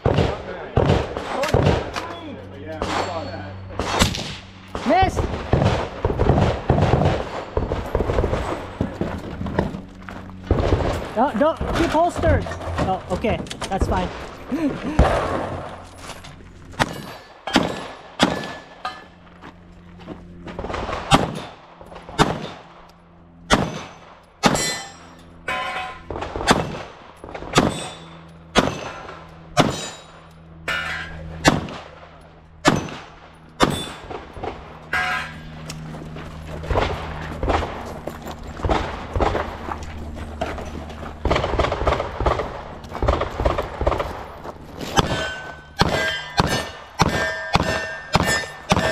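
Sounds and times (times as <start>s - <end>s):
pistol shots: 0.0s - 2.0s, 3.8s - 8.8s, 16.8s - 18.8s, 20.6s - 22.8s, 23.4s - 24.8s, 26.1s - 30.0s, 31.3s - 34.6s, 41.2s - 44.3s, 45.0s - 48.9s
metallic ring of steel targets: 1.2s - 4.8s, 11.0s - 19.3s, 21.1s - 36.0s, 44.8s - 48.9s.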